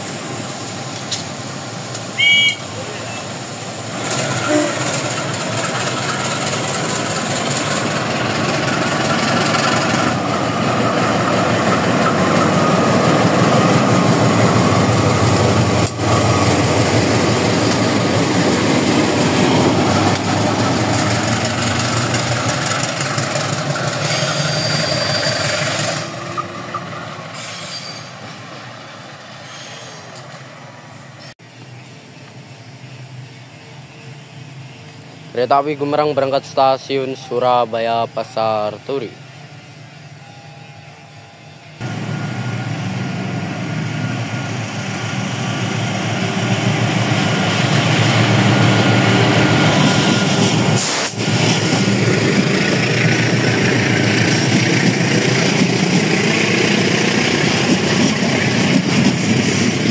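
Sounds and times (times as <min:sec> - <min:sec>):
diesel locomotive engine: 0:00.0 - 0:59.9
wheels on rails: 0:04.0 - 0:27.0.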